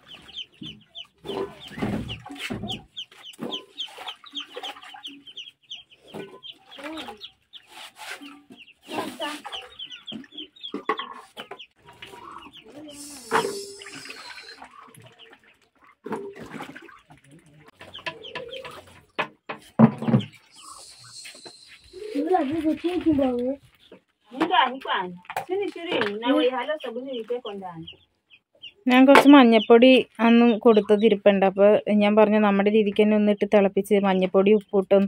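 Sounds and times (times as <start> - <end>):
water sloshing in a basin: 0.0 - 8.2, 8.8 - 23.9
chicks peeping: 0.0 - 24.1, 26.2 - 31.6
hen clucking: 0.0 - 25.1, 25.9 - 35.0.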